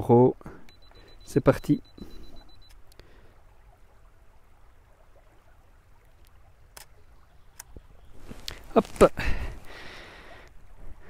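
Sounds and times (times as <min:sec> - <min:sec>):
running water: 0:00.0 - 0:11.0
camera timer beeping: 0:00.7 - 0:02.8.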